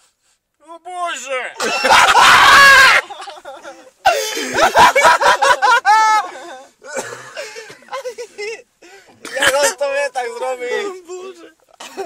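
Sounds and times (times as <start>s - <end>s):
men laughing hard: 1.6s - 8.7s, 11.8s - 12.0s.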